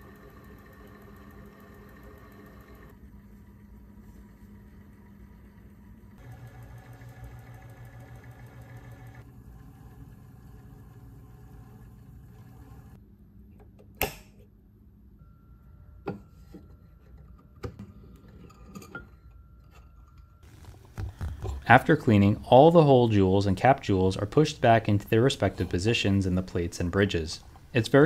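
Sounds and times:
cleaning machine motor humming: 0:05.4 - 0:13.0.

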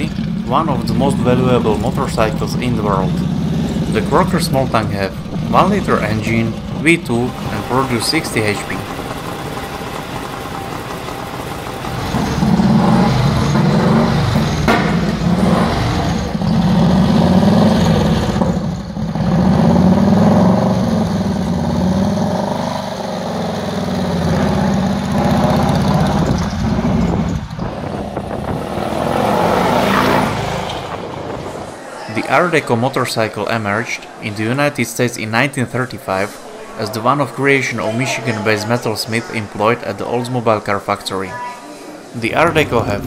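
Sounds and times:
motorcycle engine running: 0:00.0 - 0:31.7.

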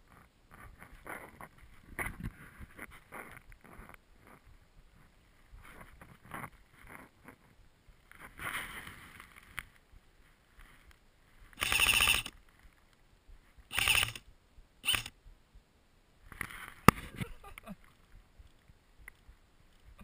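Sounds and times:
magazine wheel ratcheting clicks: 0:11.6 - 0:12.3, 0:13.7 - 0:14.2, 0:14.8 - 0:15.1.

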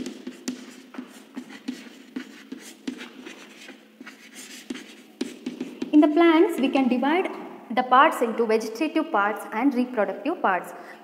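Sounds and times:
chalk tapping and scratching: 0:00.0 - 0:06.8.

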